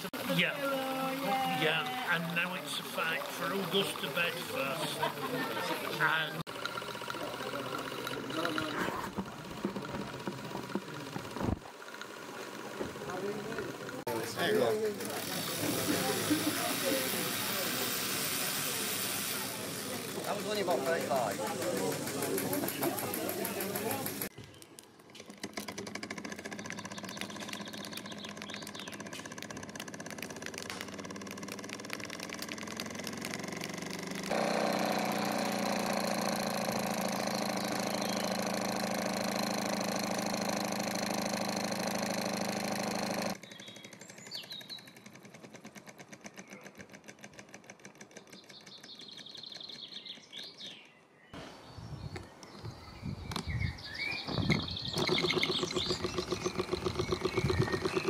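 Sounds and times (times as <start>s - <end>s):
birds chirping: 0.0s - 6.4s, 19.4s - 30.0s, 34.2s - 45.2s, 48.1s - 58.0s
model steam engine chuffing: 0.0s - 24.3s, 25.6s - 48.3s, 55.0s - 58.0s.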